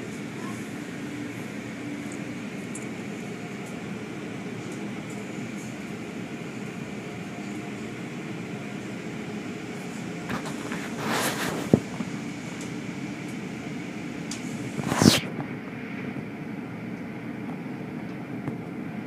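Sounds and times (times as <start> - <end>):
car wash running: 0.0 - 15.1
rush of spray or brushes: 14.8 - 15.3.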